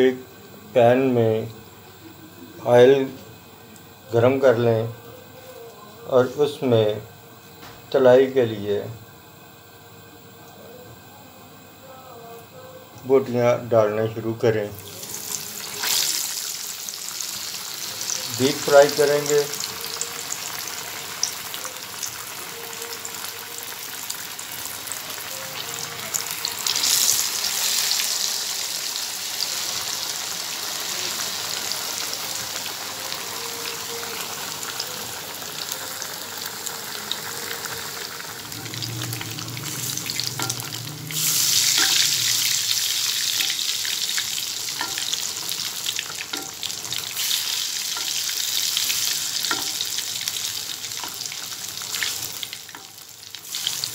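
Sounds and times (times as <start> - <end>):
fish deep-frying in oil: 14.8 - 53.9.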